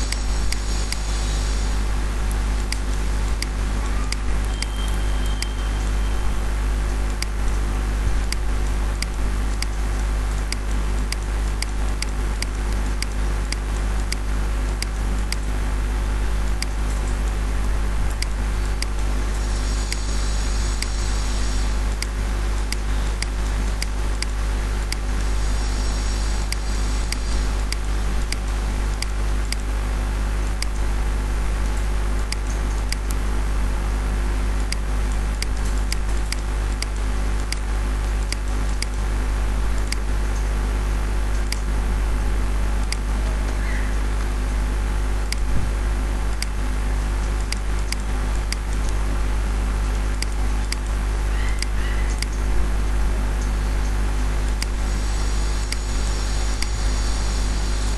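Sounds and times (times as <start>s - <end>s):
electrical hum and hiss: 0.0s - 57.9s
computer mouse clicks: 41.3s - 41.7s.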